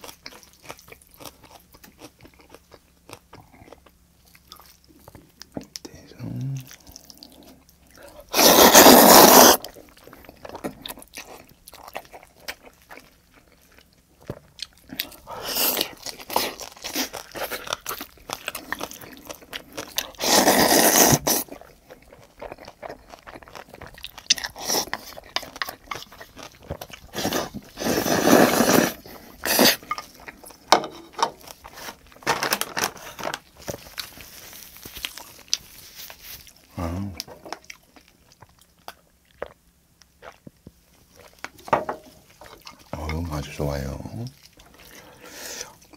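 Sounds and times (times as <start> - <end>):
wet chewing and smacking: 0.0 - 27.8, 29.0 - 32.2, 33.4 - 45.9
person slurping noodles: 8.3 - 9.7, 20.1 - 21.5, 24.5 - 25.1, 27.1 - 29.8.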